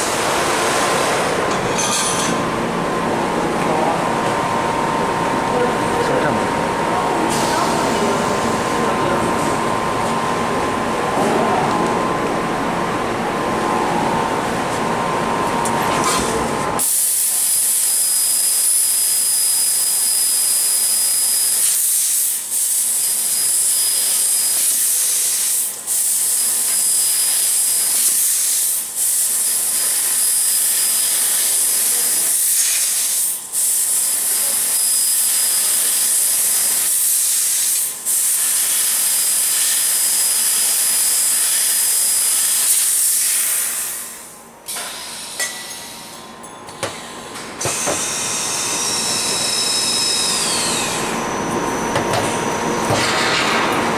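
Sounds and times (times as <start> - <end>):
high hiss of gas blowing: 16.8 - 46.0.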